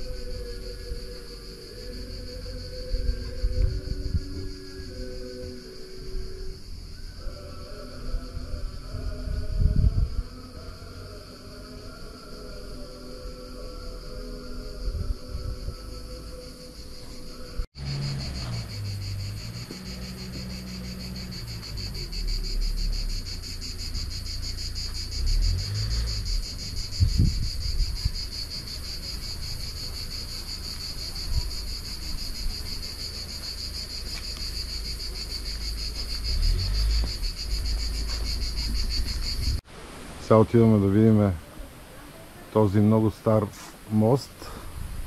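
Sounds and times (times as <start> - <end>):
low rumble: 0.0 - 11.1
insects buzzing: 0.0 - 45.0.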